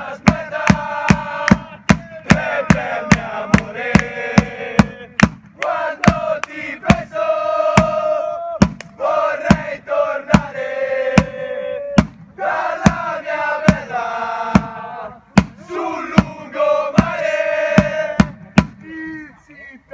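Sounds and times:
supporters chanting in unison: 0:00.0 - 0:19.0
sharp regular beats: 0:00.1 - 0:19.0.

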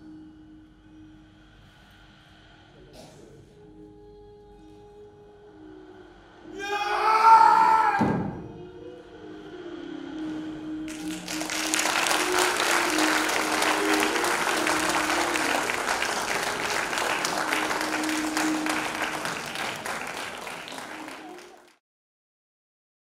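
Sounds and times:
background music: 0:00.0 - 0:21.8
audience applauding: 0:10.9 - 0:21.8.

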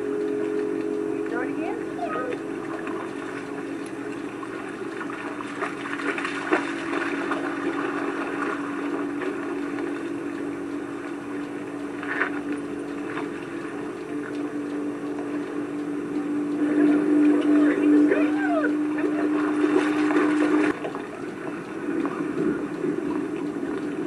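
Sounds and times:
motor hum: 0:00.0 - 0:24.0
dogs splashing through water: 0:00.5 - 0:10.2, 0:16.8 - 0:22.6.

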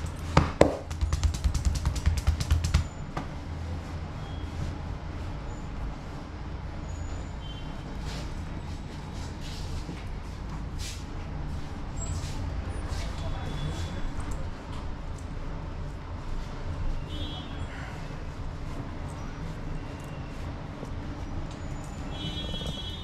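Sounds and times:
hand slaps on a back: 0:00.4 - 0:02.9.

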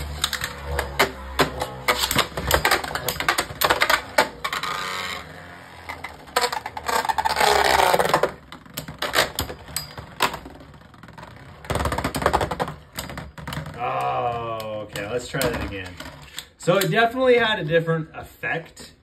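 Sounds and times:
spinning tops whirring scrape: 0:00.0 - 0:13.5.

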